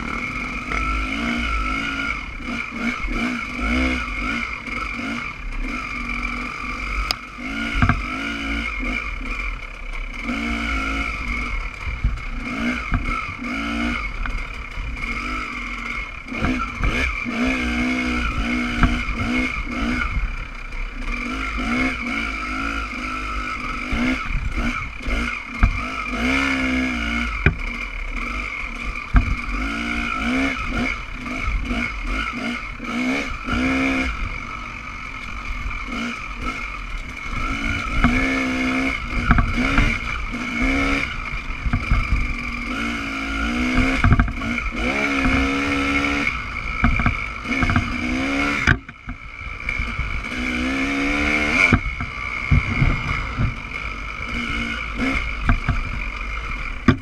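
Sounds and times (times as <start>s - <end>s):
dirt bike engine revving: 0.0s - 57.0s
wind rumble on microphone: 51.7s - 54.4s.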